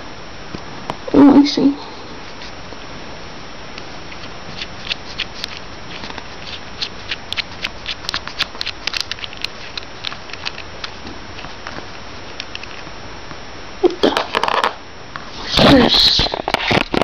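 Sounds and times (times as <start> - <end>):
small metal screw clicking: 7.3 - 11.0.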